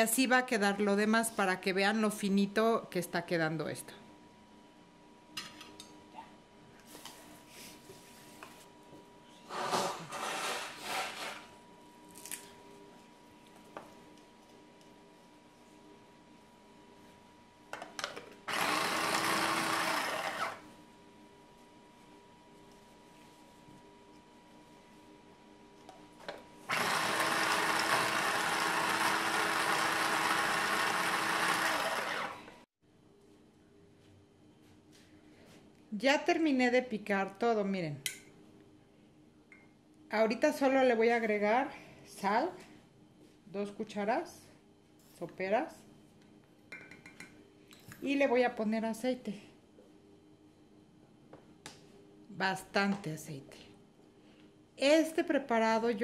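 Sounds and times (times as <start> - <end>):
plastic bowl rubbing and scraping: 9.5 - 11.5.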